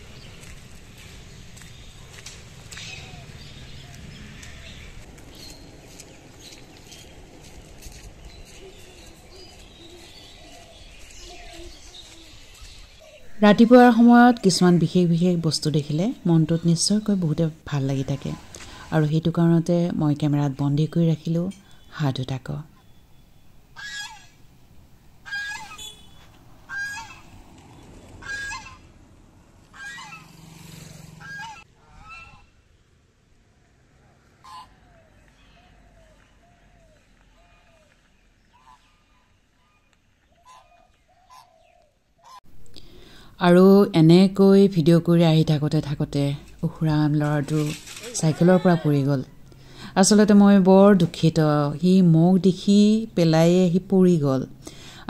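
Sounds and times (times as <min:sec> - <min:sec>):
footsteps on a road: 0:00.0 - 0:13.3, 0:35.0 - 0:41.0
distant bird calls: 0:00.0 - 0:43.2
geese honking: 0:23.7 - 0:24.4, 0:25.2 - 0:27.3, 0:28.2 - 0:28.9, 0:29.6 - 0:30.4, 0:31.1 - 0:32.6, 0:34.4 - 0:34.8, 0:40.4 - 0:41.5.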